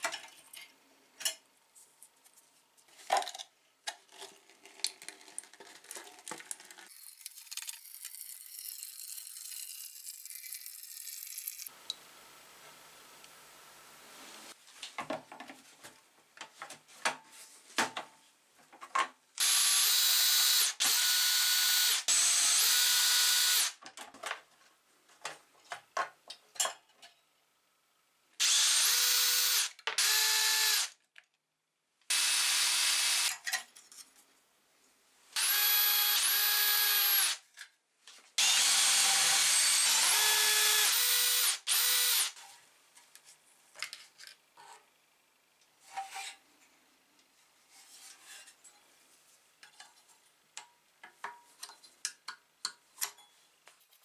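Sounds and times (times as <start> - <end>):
cordless drill whine: 19.4 - 23.7, 28.4 - 30.9, 32.1 - 33.3, 35.4 - 37.4, 38.4 - 42.4.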